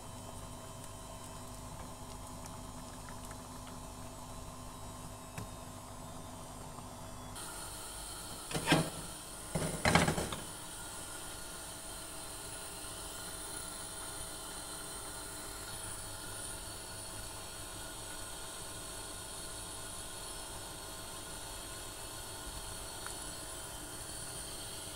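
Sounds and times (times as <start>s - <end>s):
frying pan clattering on grate: 8.5s - 10.4s.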